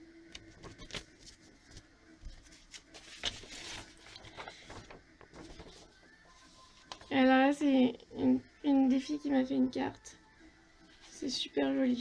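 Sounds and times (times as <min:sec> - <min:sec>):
paper rustling: 0:00.4 - 0:07.2.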